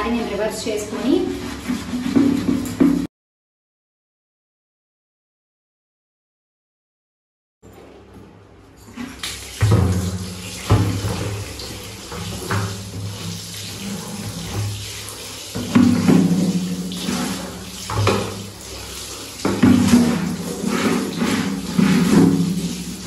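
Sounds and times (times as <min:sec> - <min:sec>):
water pouring and splashing: 0:00.0 - 0:03.1, 0:08.8 - 0:23.0
bucket knocks: 0:02.0 - 0:03.1, 0:09.6 - 0:11.5, 0:15.6 - 0:18.5, 0:19.4 - 0:23.0.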